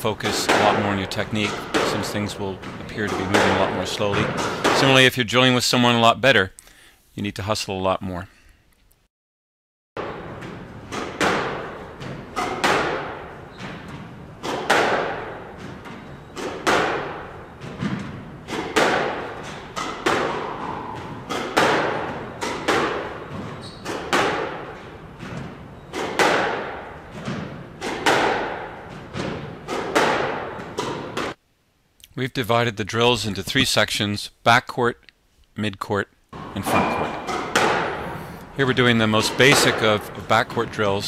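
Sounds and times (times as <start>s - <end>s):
ball hitting court walls: 0.1s - 5.1s, 10.0s - 31.4s, 36.3s - 41.0s
squash ball hit by rackets: 0.3s - 5.0s, 10.0s - 31.4s, 36.4s - 40.9s.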